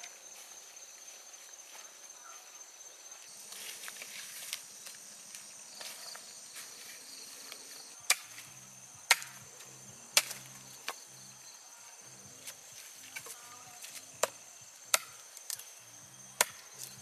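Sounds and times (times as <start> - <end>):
crickets chirping: 0.0 - 17.0
rustling of dry grass: 3.1 - 11.4
machete chopping wood: 8.1 - 8.5, 9.1 - 9.4, 10.2 - 11.0, 12.4 - 15.6, 16.4 - 17.0.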